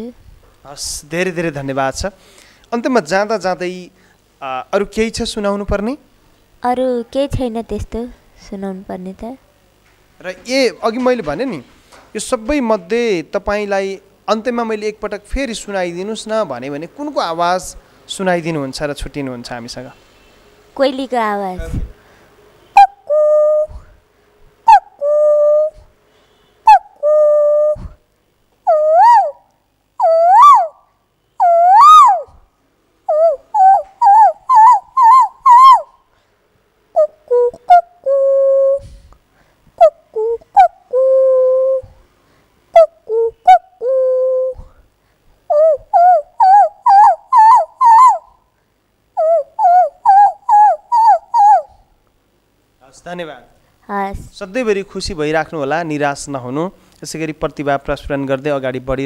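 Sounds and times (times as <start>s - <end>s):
woman mimicking bird calls: 22.8s - 23.9s, 24.7s - 25.9s, 26.7s - 28.0s, 28.7s - 30.8s, 31.4s - 32.4s, 33.1s - 36.0s, 37.0s - 39.0s, 39.8s - 42.0s, 42.8s - 44.8s, 45.5s - 48.4s, 49.2s - 51.8s.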